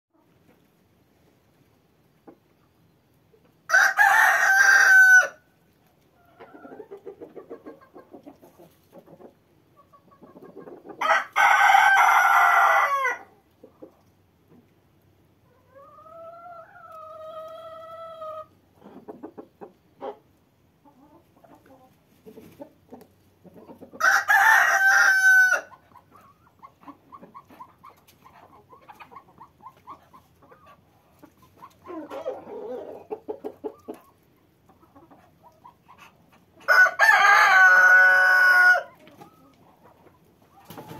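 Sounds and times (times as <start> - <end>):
chicken clucking: 0.2 - 40.9
rooster crowing: 3.7 - 5.4, 11.0 - 13.3, 24.0 - 25.7, 36.7 - 38.9.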